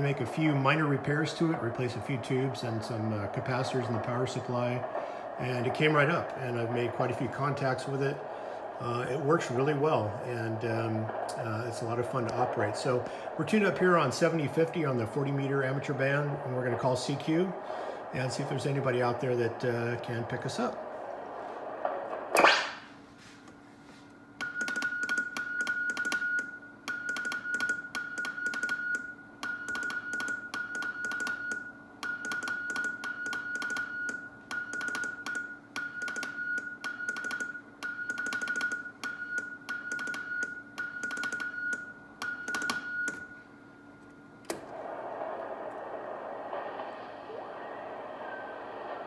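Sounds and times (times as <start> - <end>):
radio static hiss: 0.0 - 22.9, 44.6 - 49.0
morse code beeps: 24.4 - 43.5.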